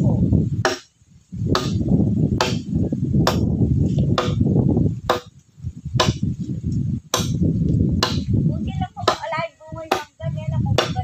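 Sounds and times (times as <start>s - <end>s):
hand tool striking wood: 0.6s - 0.9s, 1.5s - 1.8s, 2.4s - 4.4s, 5.1s - 5.4s, 6.0s - 6.3s, 7.1s - 7.4s, 8.0s - 8.3s, 9.0s - 9.3s, 9.9s - 10.1s, 10.8s - 11.0s.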